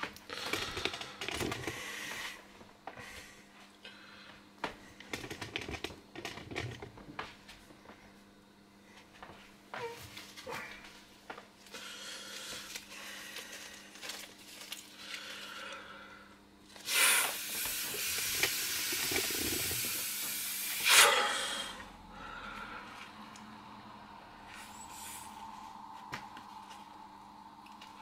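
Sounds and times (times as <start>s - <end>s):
breath blowing into valve: 16.8s - 22.8s.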